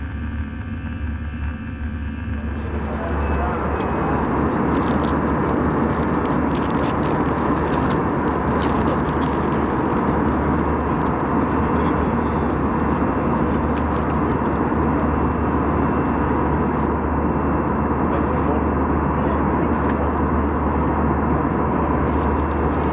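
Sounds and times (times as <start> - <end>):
aircraft cabin engine rush: 0.0 - 22.9
food wrapper crinkling: 2.8 - 11.8, 12.5 - 14.8.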